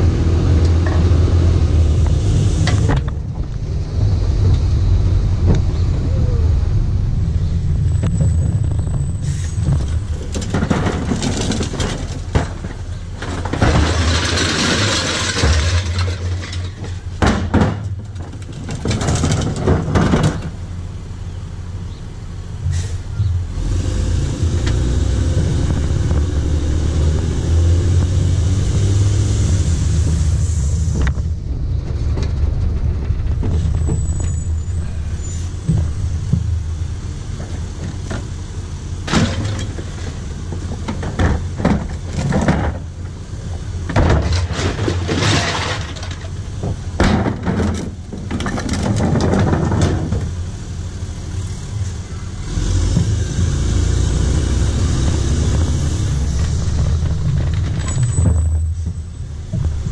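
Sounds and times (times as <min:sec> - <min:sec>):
garbage truck engine running: 0:00.0 - 0:59.9
recyclables clattering into truck: 0:08.1 - 0:20.8, 0:37.3 - 0:50.5, 0:55.5 - 0:59.9.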